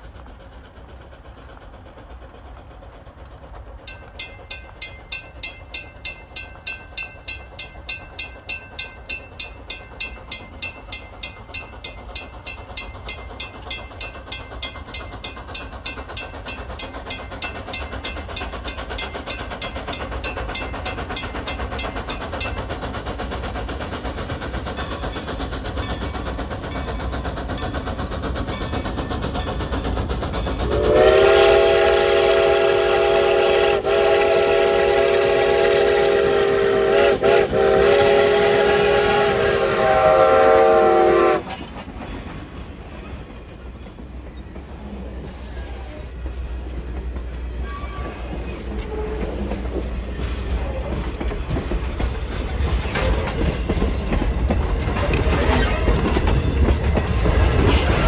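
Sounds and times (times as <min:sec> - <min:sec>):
steam locomotive rumble: 0:00.0 - 0:58.0
railroad crossing bell ringing: 0:03.8 - 0:23.0.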